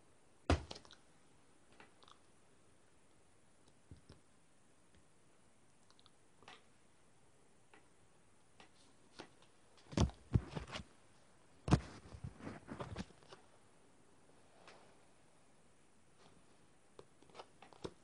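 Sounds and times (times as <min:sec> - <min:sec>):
handling knocks and rubbing: 0:09.8 - 0:10.9, 0:11.7 - 0:13.4.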